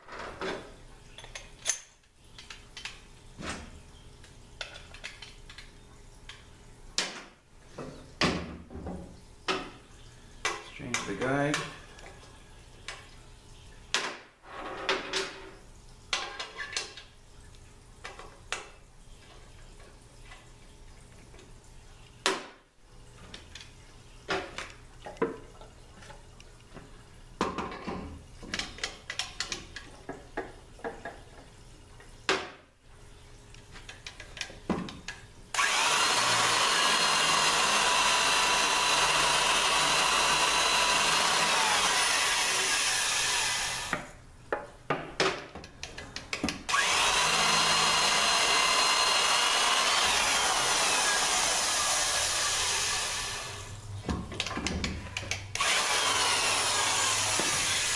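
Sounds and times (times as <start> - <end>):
tools clicking and knocking: 1.2 - 3.0
electric drill whining: 35.6 - 44.1, 46.7 - 53.9, 55.6 - 57.9.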